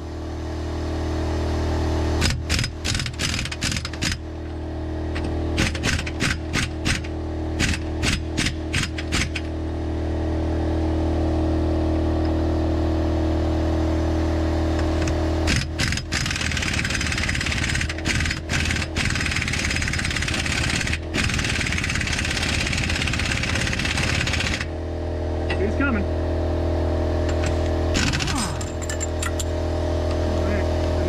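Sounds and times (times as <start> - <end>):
steady machine hum: 0.0 - 31.0
pneumatic impact wrench hammering: 2.2 - 4.2, 5.1 - 9.5, 14.9 - 24.7, 27.2 - 29.5.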